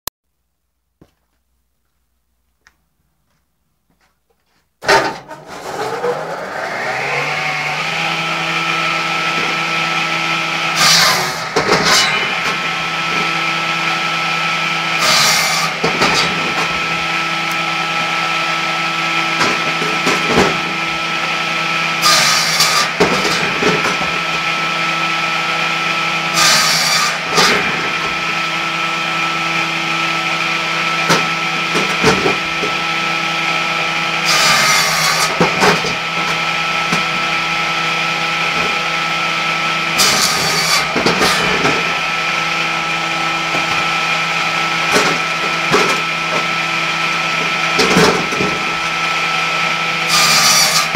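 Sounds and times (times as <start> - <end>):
saw cutting through log: 4.8 - 50.9
circular saw motor humming: 12.2 - 50.9.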